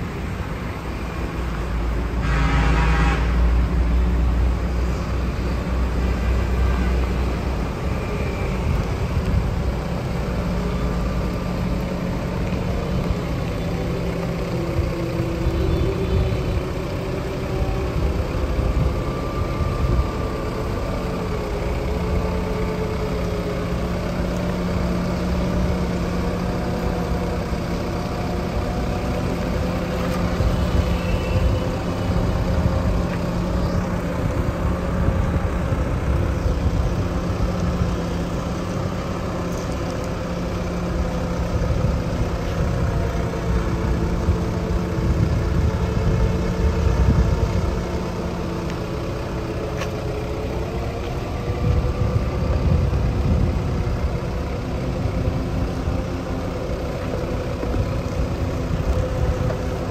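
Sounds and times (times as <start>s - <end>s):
excavator diesel engine running: 0.0s - 59.9s
horn toot: 2.2s - 3.5s.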